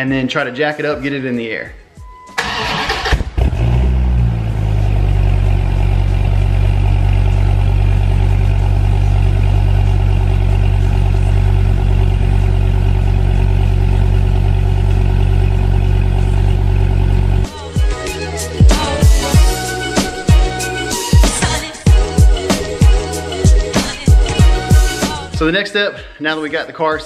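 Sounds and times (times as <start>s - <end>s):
car engine idling: 2.4s - 20.5s.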